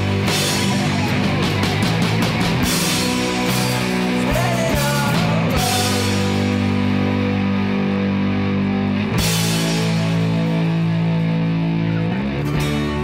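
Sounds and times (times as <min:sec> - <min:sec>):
distorted electric guitar chords: 0:00.0 - 0:13.0
rock band playing: 0:00.0 - 0:13.0.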